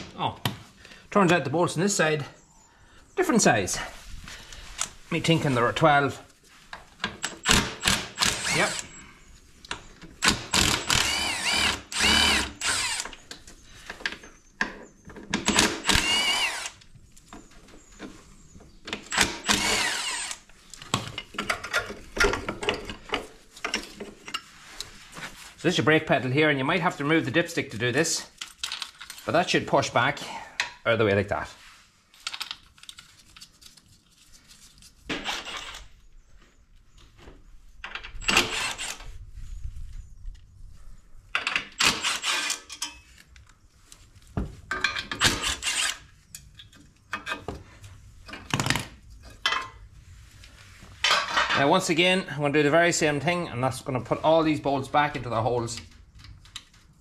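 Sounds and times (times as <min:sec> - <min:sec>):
cordless drill whining: 0:07.4 - 0:09.0, 0:10.2 - 0:13.2, 0:15.4 - 0:16.8, 0:19.1 - 0:20.5, 0:38.2 - 0:39.0, 0:41.8 - 0:42.6, 0:45.3 - 0:46.0
metal tools clicking: 0:41.5 - 0:43.0.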